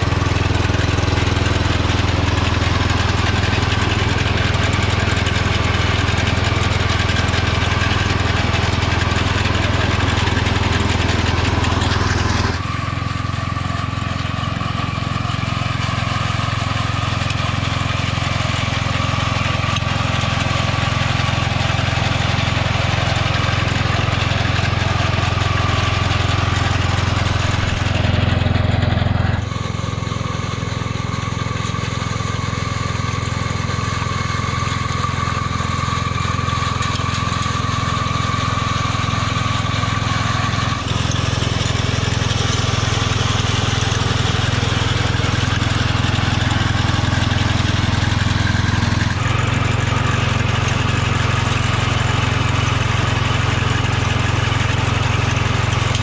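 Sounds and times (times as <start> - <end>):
riding mower engine running: 0.0 - 56.0.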